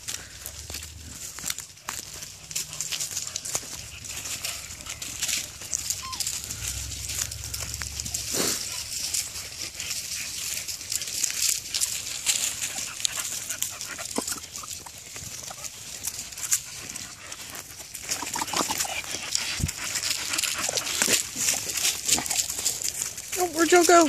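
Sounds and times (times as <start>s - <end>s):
leaves crunching under footsteps: 0.0s - 24.0s
dog whines: 5.8s - 6.9s.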